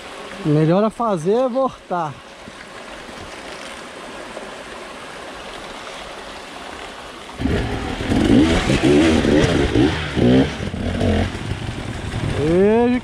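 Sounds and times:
dirt bike engines revving: 0:07.4 - 0:13.0
steady rushing noise: 0:07.4 - 0:13.0.

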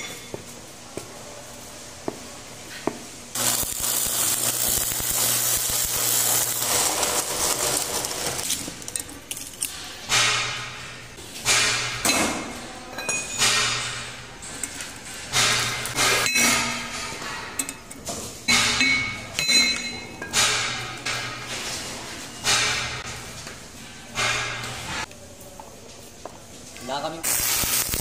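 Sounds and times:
welding arc crackling and hissing: 0:03.3 - 0:08.8, 0:26.9 - 0:28.0.

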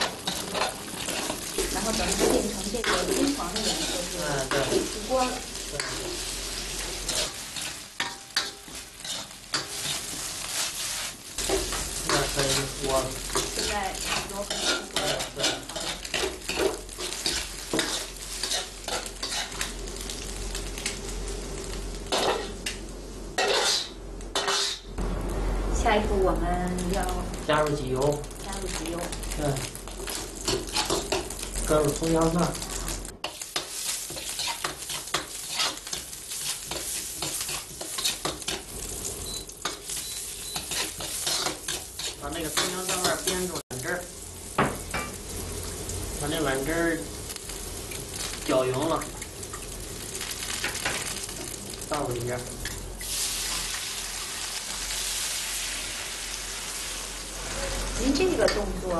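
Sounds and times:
metal spatula scraping pan: 0:00.0 - 0:06.1, 0:07.0 - 0:10.8, 0:13.3 - 0:19.7, 0:23.4 - 0:24.8, 0:33.3 - 0:38.7, 0:39.6 - 0:43.5, 0:57.3 - 0:58.7
eggs sizzling in hot oil: 0:00.0 - 0:58.9.

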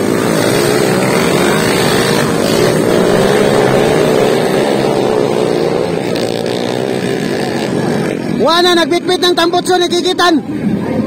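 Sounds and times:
motorcycle engines revving: 0:00.0 - 0:09.0.

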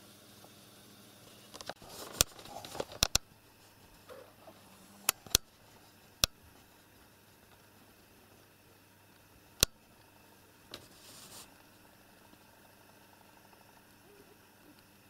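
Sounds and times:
sharp irregular clicks: 0:01.6 - 0:03.3, 0:05.1 - 0:05.5, 0:06.2 - 0:06.4, 0:09.2 - 0:10.1
faint rustling: 0:10.7 - 0:11.6.

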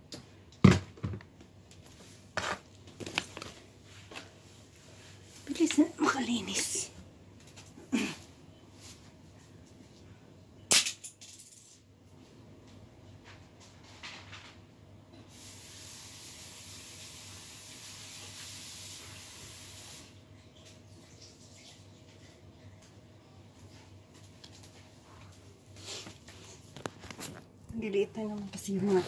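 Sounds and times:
steady hiss: 0:15.3 - 0:20.2.

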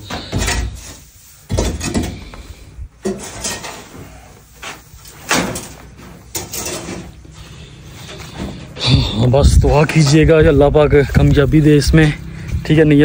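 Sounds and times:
tool scraping and knocking floor: 0:00.0 - 0:07.3.

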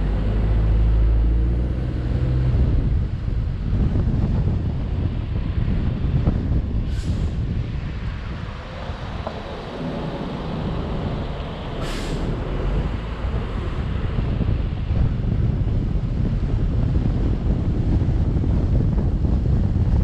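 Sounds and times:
car road noise: 0:00.0 - 0:20.0
wind rumble on microphone: 0:00.0 - 0:20.0
short hisses: 0:11.8 - 0:12.3.

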